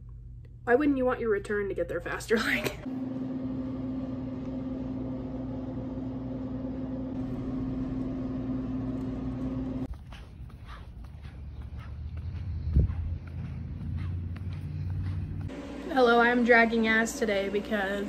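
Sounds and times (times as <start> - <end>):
steady mechanical hum: 1.9 - 18.0
footsteps on concrete: 9.7 - 15.6.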